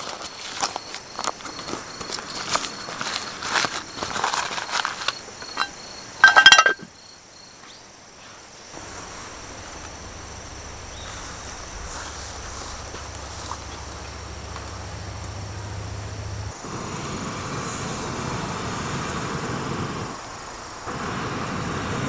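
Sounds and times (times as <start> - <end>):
paper rustling: 0.0 - 5.6
insect chirping: 0.0 - 22.0
metal tin knocks: 5.6 - 6.9.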